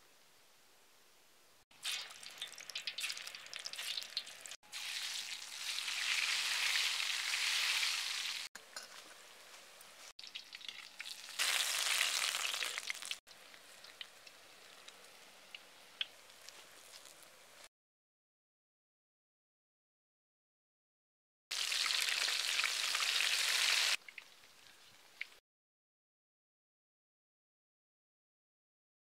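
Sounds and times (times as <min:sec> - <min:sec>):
oil crackling and popping: 0:01.7 - 0:17.4, 0:21.5 - 0:25.4
hissing sizzle of deep-frying: 0:01.8 - 0:17.7, 0:21.5 - 0:25.4.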